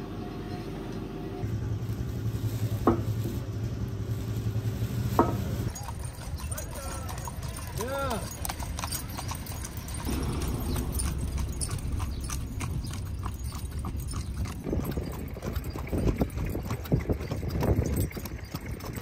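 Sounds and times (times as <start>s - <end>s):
horse hooves clip-clopping on road: 1.4s - 19.0s
low rumble: 9.2s - 17.2s.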